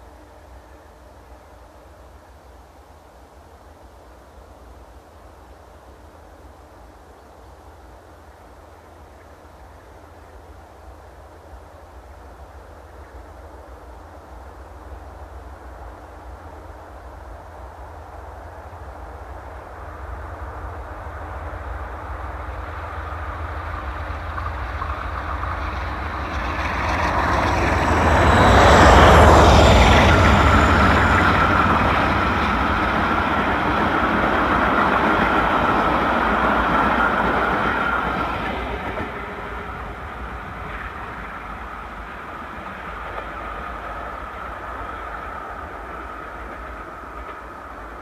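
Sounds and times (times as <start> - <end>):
steady high whine: 12.6 - 48.0
diesel locomotive under load: 20.0 - 48.0.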